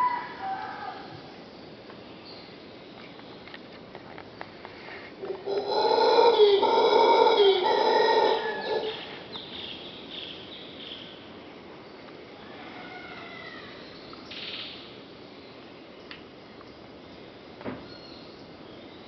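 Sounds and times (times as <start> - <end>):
howler monkey howling: 5.2 - 9.2.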